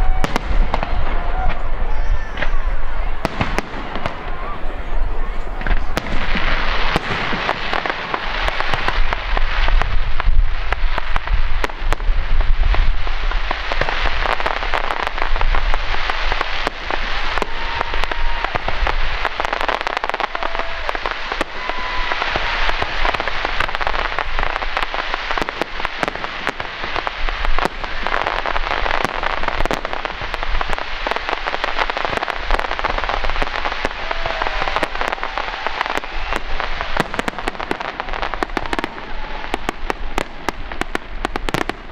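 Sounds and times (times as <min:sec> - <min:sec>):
deep fireworks booms: 0:00.0 - 0:41.9
fireworks crackling: 0:00.0 - 0:41.9
fireworks hiss: 0:00.0 - 0:41.9.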